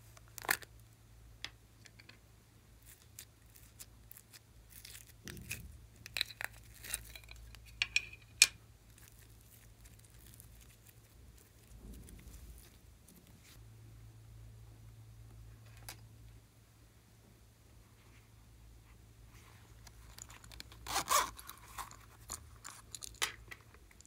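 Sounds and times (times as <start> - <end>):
foam beads crackling and clicking: 2.8 - 13.3, 19.9 - 24.0.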